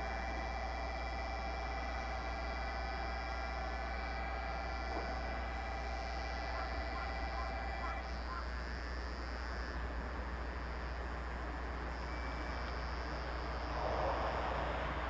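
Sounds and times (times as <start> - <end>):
distant locomotive drone: 0.0 - 8.7, 11.4 - 15.0
faint steady tone: 0.0 - 15.0.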